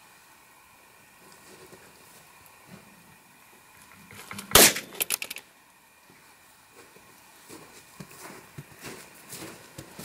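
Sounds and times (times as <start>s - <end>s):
smaller cracks: 4.1s - 5.4s
handgun shot: 4.4s - 5.4s.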